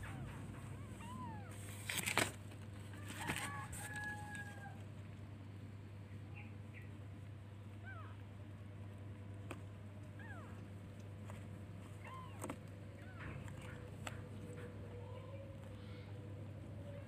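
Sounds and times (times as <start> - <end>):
kittens mewing: 0.0 - 1.8, 10.0 - 17.0
rooster crowing: 3.0 - 4.8.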